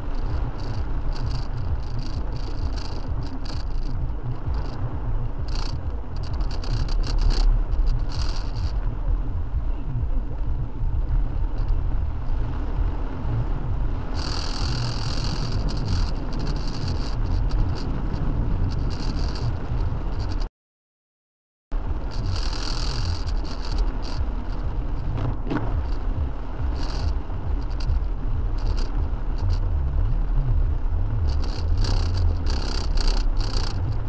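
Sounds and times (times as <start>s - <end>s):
rain hissing on car: 0.0s - 9.3s, 10.2s - 20.5s, 21.8s - 34.0s
car engine and road rumble: 0.0s - 20.5s, 21.7s - 34.0s.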